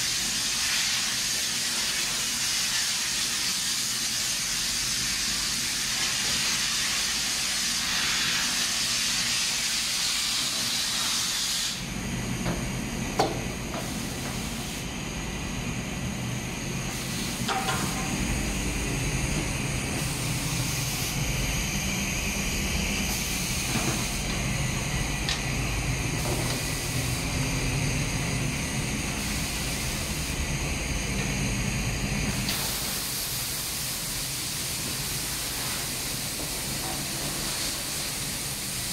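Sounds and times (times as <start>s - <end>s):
compressed air hissing: 0.0s - 11.9s, 13.7s - 14.9s, 16.8s - 21.3s, 23.0s - 27.4s, 28.5s - 30.4s, 32.2s - 38.9s.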